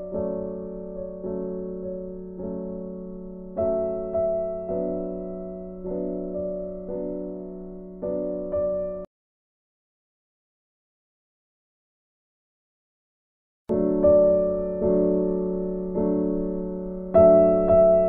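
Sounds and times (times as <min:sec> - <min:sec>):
soft piano chords: 0:00.0 - 0:09.1, 0:13.7 - 0:18.0.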